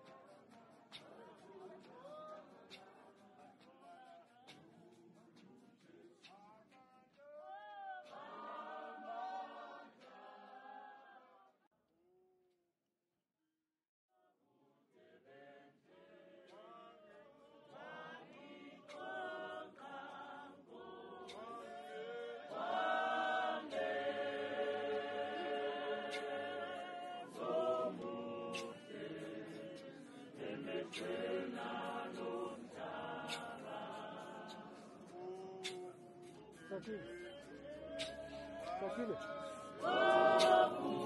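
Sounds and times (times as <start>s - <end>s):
congregation singing a hymn: 7.5s - 11.2s, 15.0s - 41.0s.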